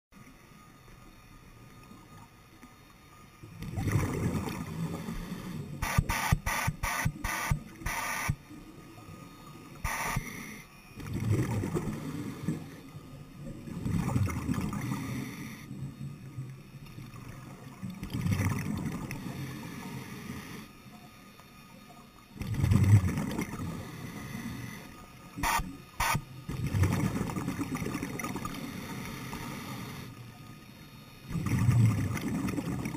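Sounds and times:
exhaled bubbles underwater: 3.5s - 5.1s, 11.0s - 12.8s, 13.4s - 15.2s, 17.0s - 19.4s, 22.4s - 23.9s, 26.5s - 28.7s, 31.3s - 32.9s
regulator inhalation hiss: 4.8s - 8.5s, 9.1s - 10.8s, 14.8s - 15.7s, 23.7s - 26.2s, 28.5s - 31.3s.

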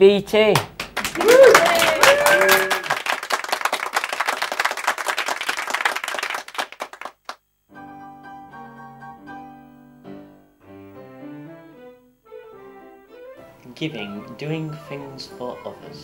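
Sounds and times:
people clapping: 0.5s - 7.4s
music with sustained chords: 7.8s - 16.0s.

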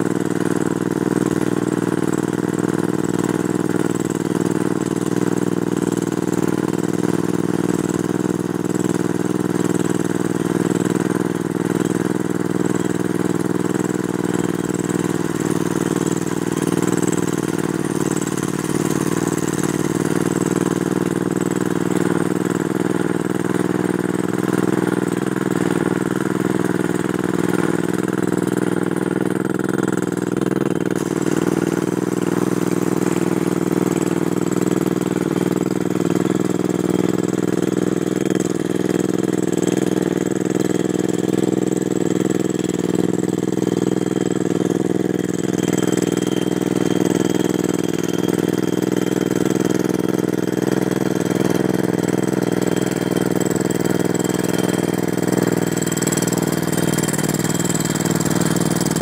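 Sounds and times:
rock drill drilling: 50.9s - 59.0s.

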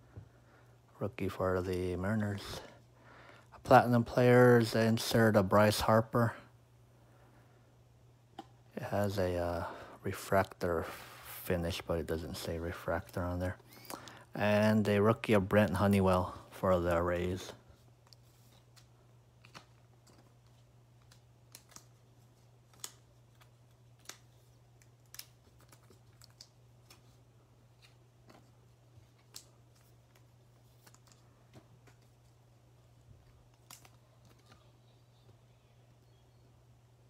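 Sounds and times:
low steady hum: 0.0s - 37.0s
trading cards being handled: 11.6s - 14.4s, 15.1s - 36.7s.

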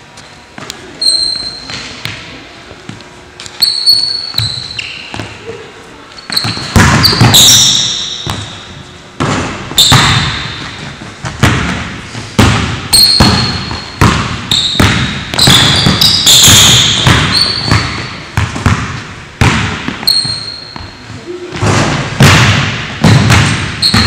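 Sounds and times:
sneakers squeaking on court: 0.6s - 24.0s
basketball bouncing on hardwood: 6.3s - 8.5s, 9.2s - 20.9s, 22.2s - 24.0s.

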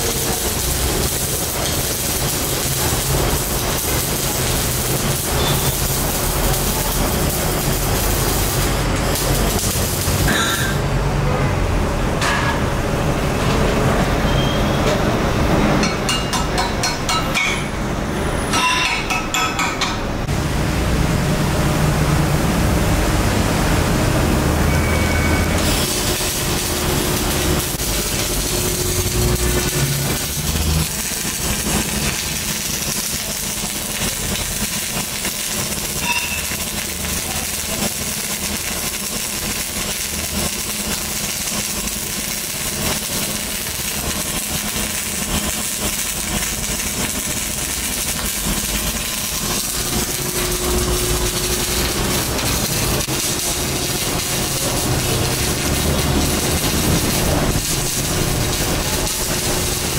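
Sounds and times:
arc welding crackling hiss: 0.0s - 10.9s, 22.8s - 59.9s.

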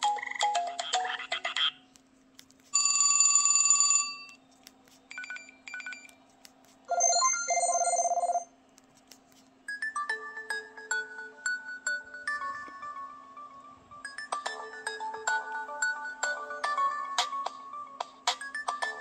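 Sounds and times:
melodic ringtone: 0.0s - 1.3s, 6.9s - 8.5s, 9.7s - 19.0s
telephone bell ring: 2.8s - 4.3s, 6.9s - 8.5s.

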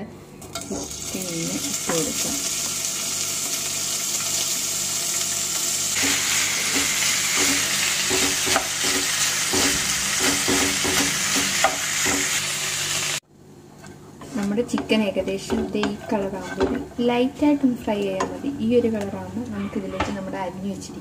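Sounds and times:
chicken sizzling in hot oil: 0.6s - 13.2s
wooden spatula scraping pan: 15.5s - 17.0s.

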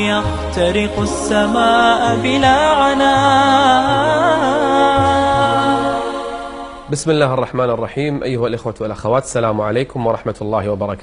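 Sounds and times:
solo voice wordless melismatic singing: 0.0s - 7.1s.

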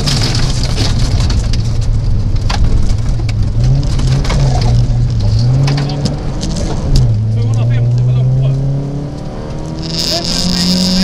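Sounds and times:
gravel clattering against car underside: 0.0s - 7.7s
rally car engine revving: 0.0s - 11.0s.

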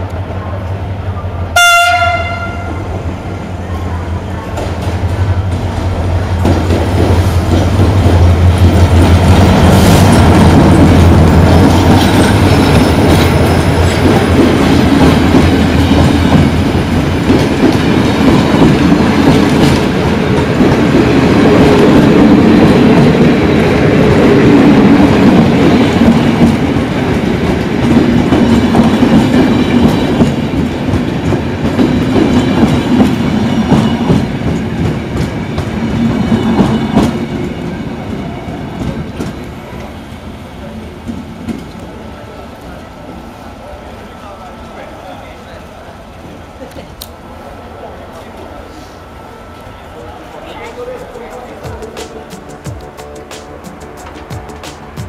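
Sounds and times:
locomotive humming: 0.0s - 55.0s
train wheels clacking on rail joints: 25.0s - 37.7s, 50.3s - 55.0s.

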